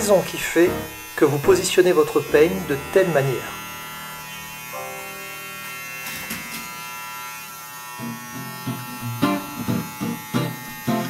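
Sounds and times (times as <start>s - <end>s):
electric hair clipper buzzing: 0.0s - 11.0s
plucked guitar music: 8.0s - 11.0s.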